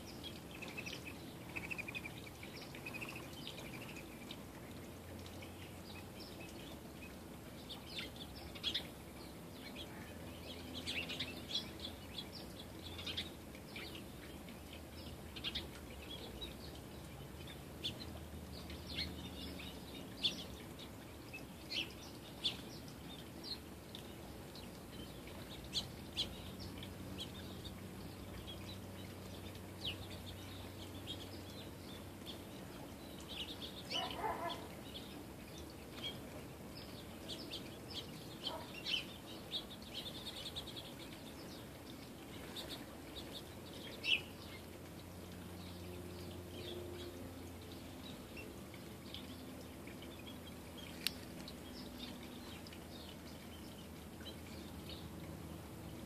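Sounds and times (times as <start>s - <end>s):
small songbirds chirping: 0.0s - 56.0s.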